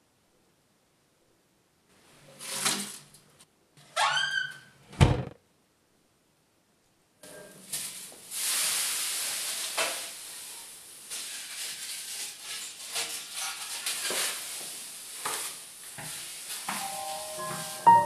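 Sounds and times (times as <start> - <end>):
plastic sheeting rustling: 7.6 - 18.0.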